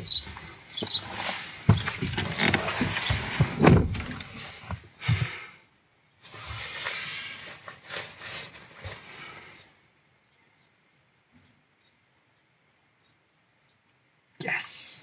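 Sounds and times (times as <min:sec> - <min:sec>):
knocks and rustling in car seat: 0:00.8 - 0:05.3.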